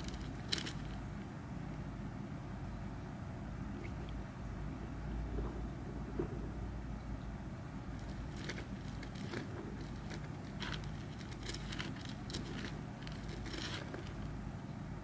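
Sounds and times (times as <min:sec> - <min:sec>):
steady low hum: 0:00.0 - 0:15.0
crackles and rustles of soil: 0:07.9 - 0:14.4.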